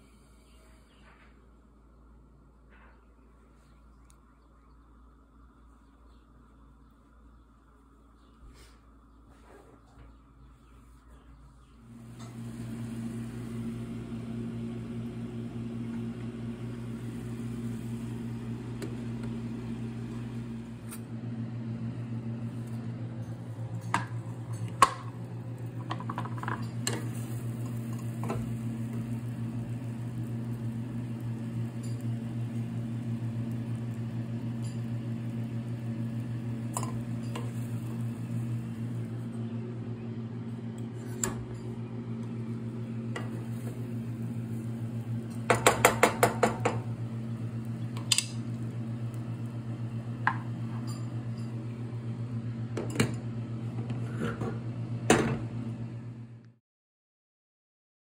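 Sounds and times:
electric motor hum: 11.8 - 56.4
cookware and utensils clinking: 25.8 - 28.4.

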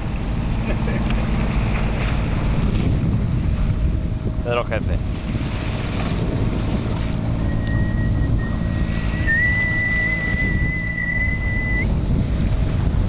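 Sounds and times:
water rushing along boat bow: 0.0 - 13.0
wind buffeting microphone: 0.0 - 13.0
high steady whistle: 7.4 - 11.9.

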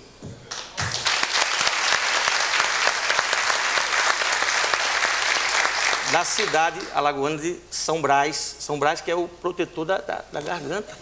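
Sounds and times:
studio audience applauding: 0.5 - 7.0.

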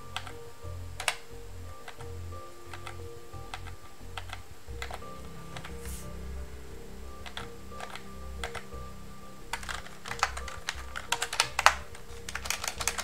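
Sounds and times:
typing on keyboard: 1.0 - 1.2, 2.7 - 5.0, 9.5 - 13.0.

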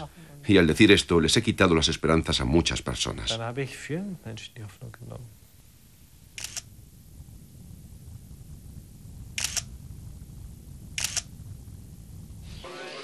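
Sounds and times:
low steady hum: 0.0 - 13.0
camera shutter clicking: 6.4 - 6.7, 9.4 - 9.7, 11.0 - 11.3.

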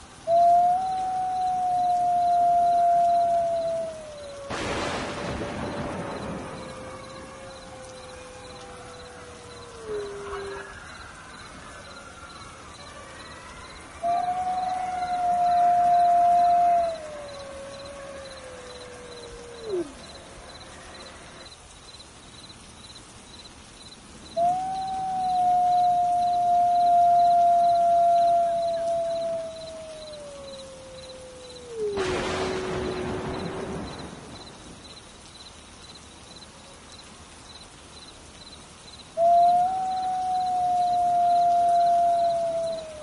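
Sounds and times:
wolf howling: 0.2 - 21.4, 24.4 - 33.6, 39.2 - 43.0
faint chirps: 5.2 - 43.0.

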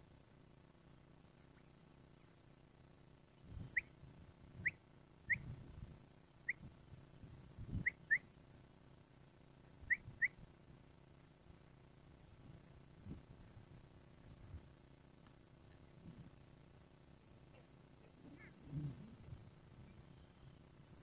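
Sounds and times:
short rising whistled chirps: 3.6 - 4.0, 4.6 - 5.5, 7.8 - 8.3, 19.8 - 20.6.

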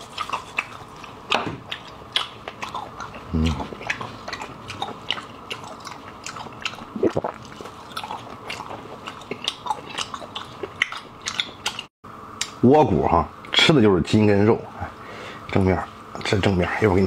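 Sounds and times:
wet chewing smacks: 0.0 - 11.9
person humming: 3.3 - 3.7.

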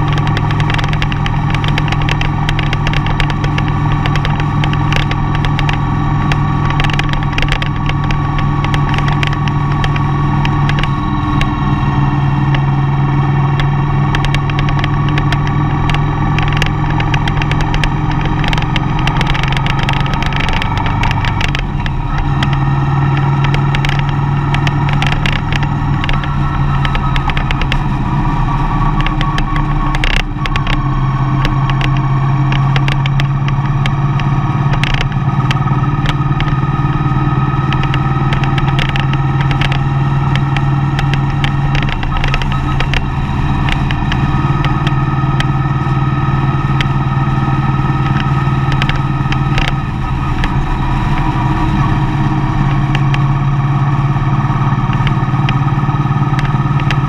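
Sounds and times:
light clicks and knocks: 0.0 - 11.6, 13.5 - 28.0, 28.8 - 36.7, 47.8 - 51.4
road noise: 0.0 - 57.0
vehicle engine running: 0.0 - 57.0.

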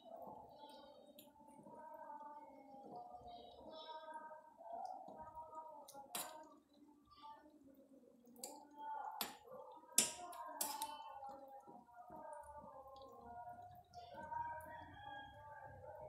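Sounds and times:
faint voice or music: 0.0 - 16.0
metal spoon scraping a pot: 10.0 - 11.1.

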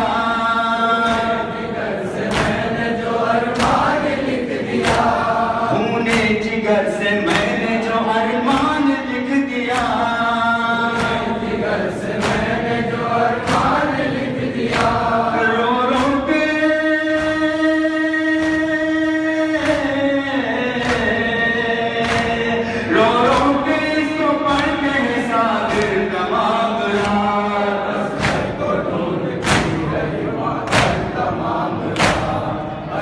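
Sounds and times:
men chanting a lament: 0.0 - 33.0
chest-beating slaps: 1.0 - 6.5, 7.3 - 7.6, 10.9 - 15.1, 17.1 - 17.6, 18.3 - 18.8, 20.8 - 21.4, 22.0 - 22.4, 25.6 - 26.2, 26.9 - 27.3, 28.1 - 28.6, 29.3 - 31.3, 31.9 - 32.5.

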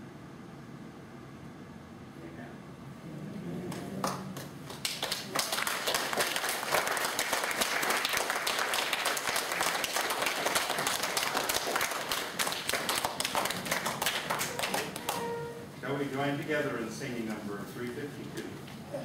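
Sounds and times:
crowd applauding: 3.5 - 15.5.

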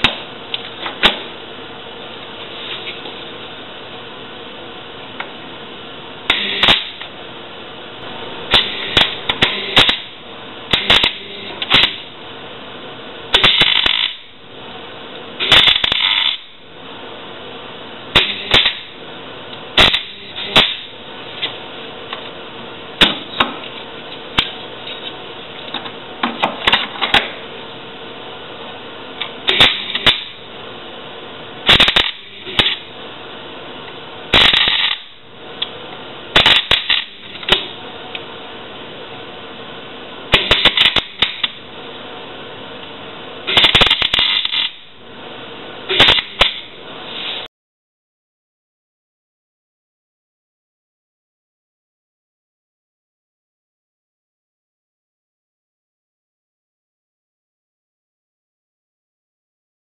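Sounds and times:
steady low hum: 0.0 - 47.5
welder arc crackling: 6.3 - 7.1, 8.0 - 12.2, 13.2 - 14.4, 15.1 - 16.6, 18.1 - 21.5, 29.2 - 30.5, 31.6 - 32.9, 34.3 - 38.2, 40.3 - 41.7, 43.5 - 45.0, 45.9 - 47.5.

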